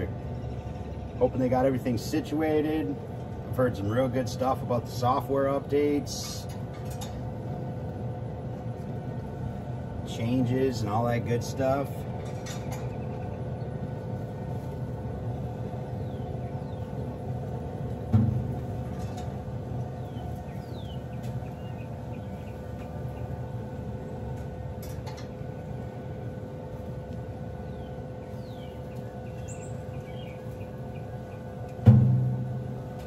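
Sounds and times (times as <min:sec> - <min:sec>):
grill fan humming: 0:00.0 - 0:33.0
low thump: 0:18.1 - 0:18.5, 0:31.8 - 0:32.5.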